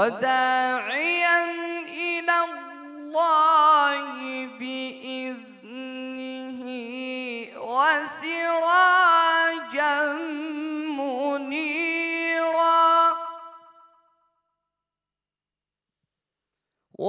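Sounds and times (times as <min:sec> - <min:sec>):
man chanting into a microphone: 0:00.0 - 0:13.6.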